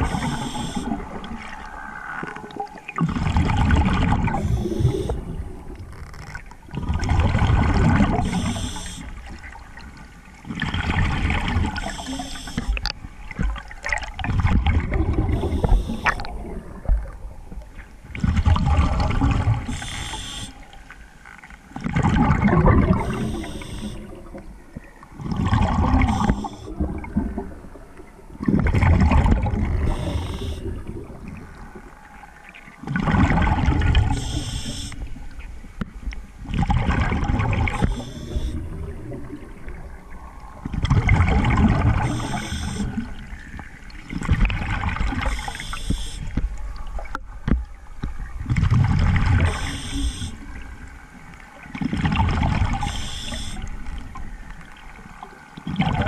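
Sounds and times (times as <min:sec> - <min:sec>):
regulator hiss: 0:08.2 - 0:09.1, 0:19.7 - 0:20.6, 0:29.9 - 0:30.6, 0:34.2 - 0:35.0, 0:42.0 - 0:42.9, 0:45.3 - 0:46.3, 0:49.5 - 0:50.4, 0:52.8 - 0:53.6
diver exhaling bubbles underwater: 0:13.8 - 0:17.4, 0:18.2 - 0:20.6, 0:21.8 - 0:24.4, 0:25.2 - 0:31.8, 0:36.5 - 0:46.2.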